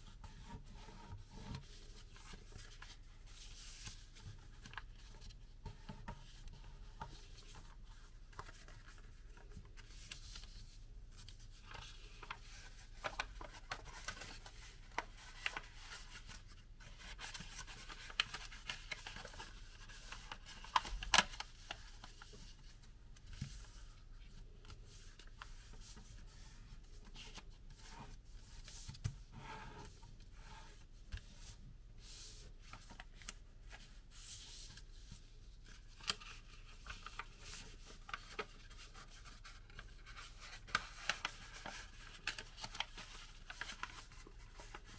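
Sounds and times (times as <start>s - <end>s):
paper rustling and crinkling: 0.5s - 44.9s
sharp paper crackles: 36.0s - 44.9s.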